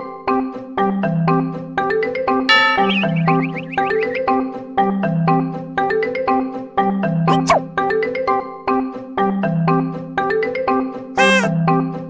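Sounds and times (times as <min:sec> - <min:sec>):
light tune of ringing notes: 0:02.5 - 0:04.3.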